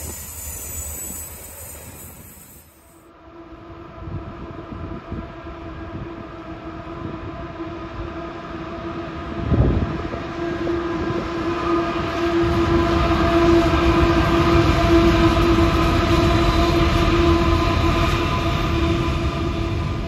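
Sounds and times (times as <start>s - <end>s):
diesel locomotive engine drone: 0.0s - 20.0s.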